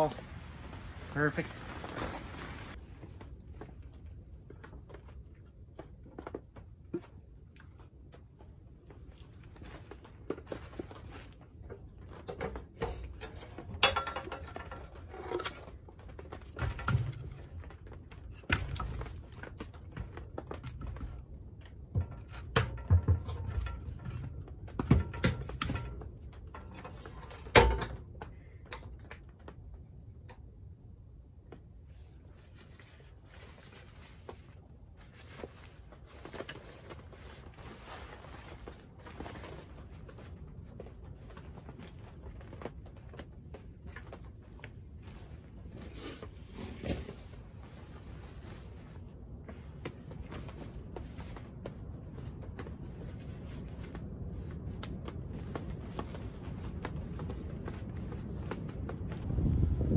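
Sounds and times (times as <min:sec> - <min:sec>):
knocks and clunks at a wood stove: 0:09.9 - 0:30.5.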